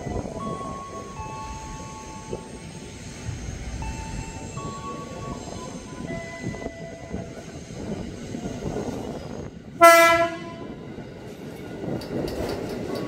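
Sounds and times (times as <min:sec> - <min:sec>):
electric train running: 0:00.0 - 0:13.0
train horn blast: 0:09.8 - 0:10.8.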